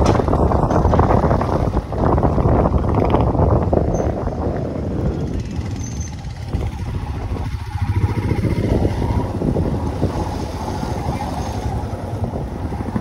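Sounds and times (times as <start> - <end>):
vehicle engine and road noise: 0.0 - 13.0.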